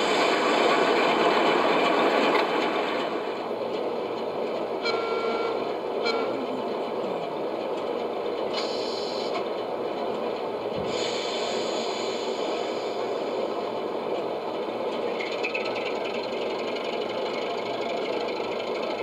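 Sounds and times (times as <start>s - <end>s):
model train rumbling on track: 0.0s - 19.0s.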